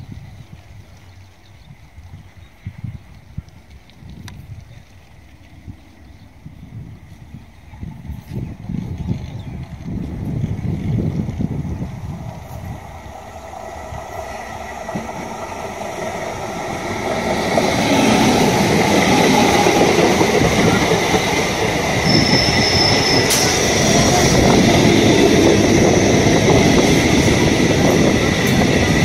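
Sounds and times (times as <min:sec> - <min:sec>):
train wheels rumbling on rail: 0:07.8 - 0:29.0
high squeal: 0:21.9 - 0:27.1.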